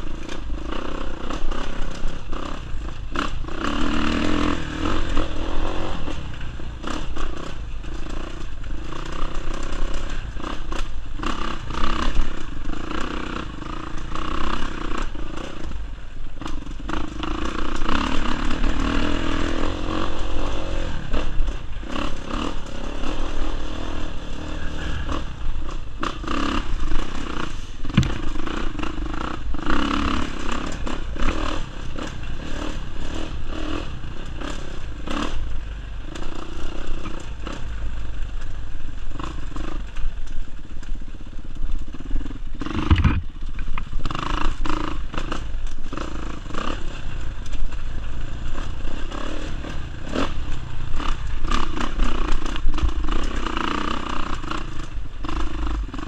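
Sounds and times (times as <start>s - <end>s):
dirt bike engine revving: 0.0s - 37.8s, 42.0s - 43.4s
bike rattling over rough ground: 0.0s - 56.0s
sharp knock: 27.9s - 28.4s, 42.8s - 43.3s.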